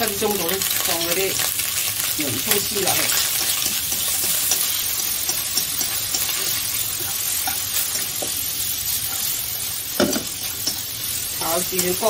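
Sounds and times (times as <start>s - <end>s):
food sizzling in hot oil: 0.0s - 12.0s
chopsticks tapping pan: 2.5s - 8.4s, 10.0s - 10.9s.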